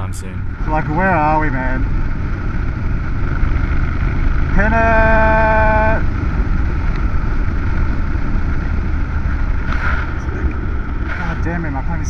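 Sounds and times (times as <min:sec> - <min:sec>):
motorcycle engine running: 0:00.0 - 0:12.0
wind rushing over microphone: 0:00.0 - 0:12.0
person shouting a drawn-out call: 0:04.5 - 0:06.0.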